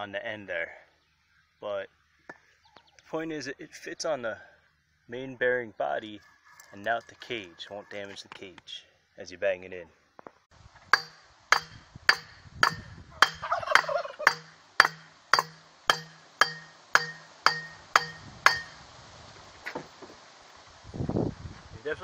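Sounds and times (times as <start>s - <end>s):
steel pipe clanking on metal: 10.9s - 18.8s.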